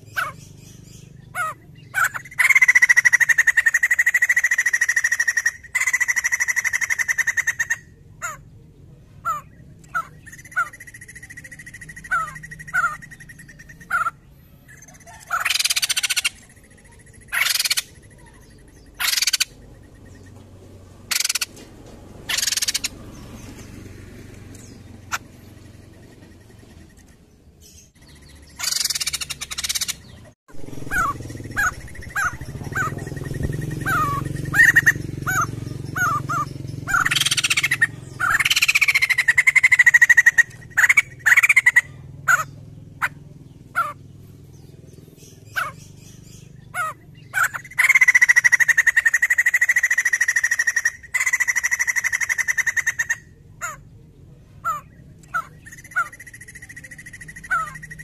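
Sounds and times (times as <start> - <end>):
bird singing: 0.0 - 58.0
low rumble: 30.1 - 37.2.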